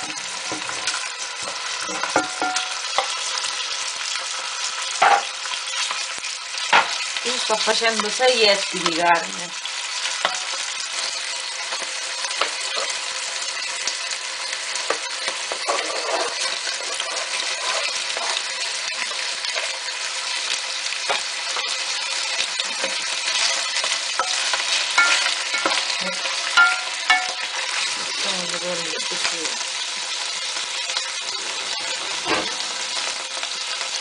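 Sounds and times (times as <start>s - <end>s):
meat sizzling in hot oil: 0.0s - 34.0s
wooden spoon stirring meat: 14.9s - 19.7s.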